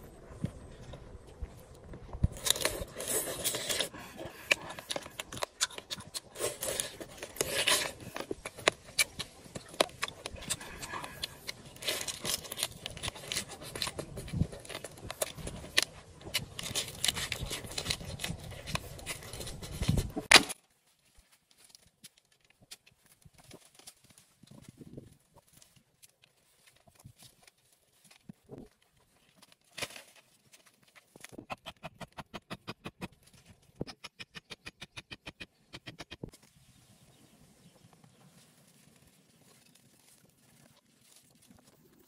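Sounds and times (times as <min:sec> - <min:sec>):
crunchy food chewing: 0:02.3 - 0:19.8
lettuce leaves tearing: 0:02.3 - 0:19.9.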